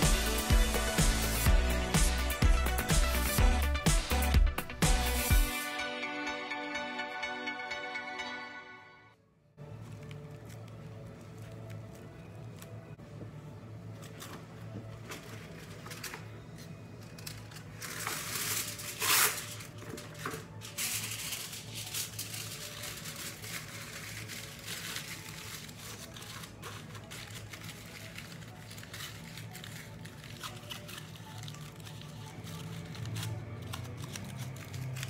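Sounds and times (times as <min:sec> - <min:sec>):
soft background music: 0:00.0 - 0:35.0
aluminium foil crinkling: 0:15.0 - 0:35.0.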